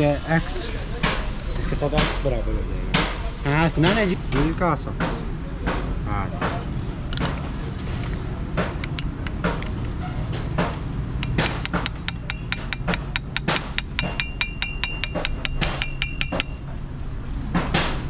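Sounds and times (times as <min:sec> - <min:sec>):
wrench metal clicks: 0:08.8 - 0:09.8.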